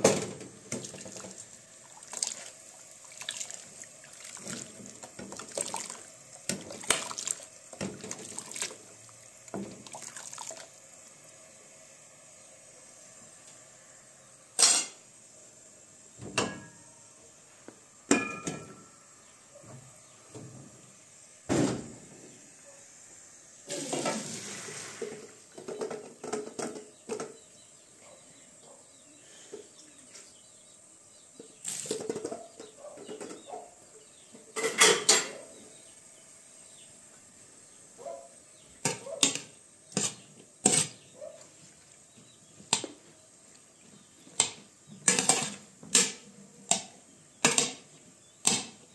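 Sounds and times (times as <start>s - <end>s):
metal pots clinking and scraping: 34.5s - 35.4s.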